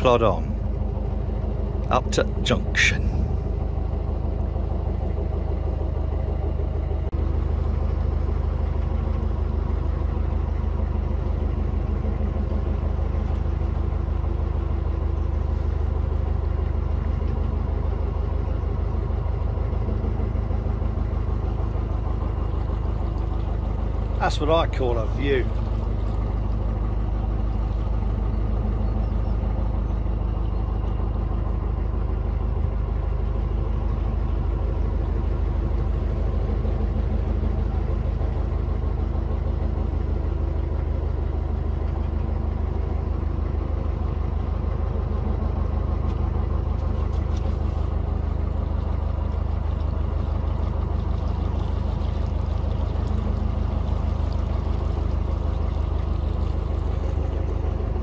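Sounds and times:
boat diesel engine throbbing: 0.0s - 58.0s.

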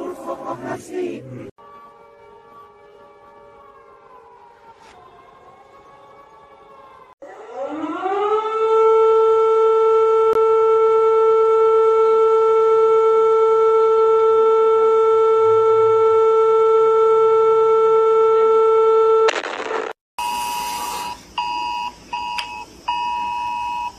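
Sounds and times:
civil defense siren winding up: 1.6s - 19.3s
faint falling siren tone: 1.6s - 19.3s.

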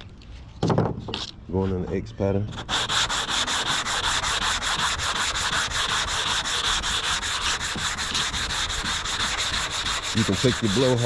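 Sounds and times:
sandpaper rubbing back and forth: 2.5s - 11.0s.

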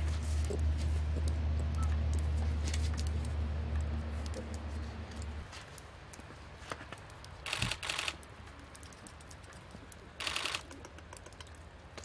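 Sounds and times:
small clicks: 2.8s - 12.0s.

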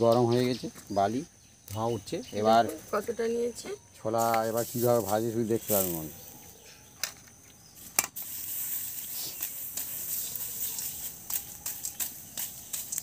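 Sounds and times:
gritty scraping of sand in wok: 4.2s - 6.3s, 7.7s - 13.0s
grains ticking against iron: 4.2s - 13.0s.

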